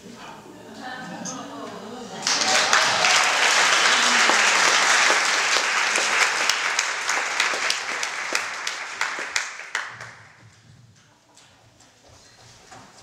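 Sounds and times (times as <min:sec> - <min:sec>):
audience clapping: 0:02.2 - 0:10.6.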